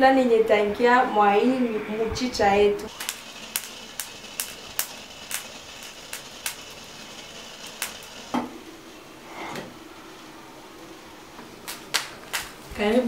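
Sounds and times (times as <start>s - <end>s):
small hard objects clinking: 2.9s - 8.2s.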